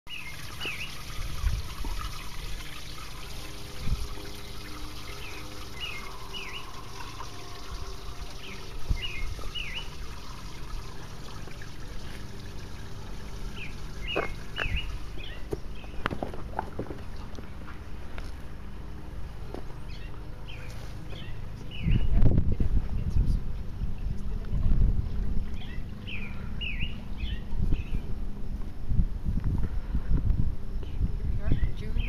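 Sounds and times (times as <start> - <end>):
fountain splashing and trickling: 0.1 - 15.8
bird chirping: 5.0 - 7.6, 8.3 - 10.0, 13.6 - 16.1.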